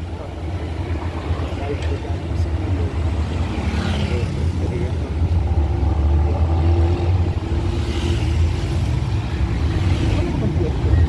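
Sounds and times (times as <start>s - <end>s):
street traffic passing: 0.0s - 11.0s
vehicle engine droning: 0.0s - 11.0s.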